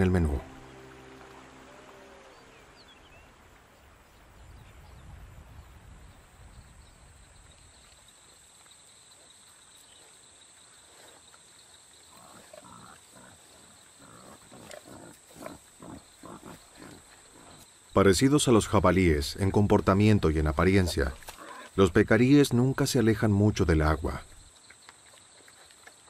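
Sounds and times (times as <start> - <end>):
night insects whining: 0.0 - 25.0
peccaries grunting: 12.1 - 17.6, 20.4 - 21.9.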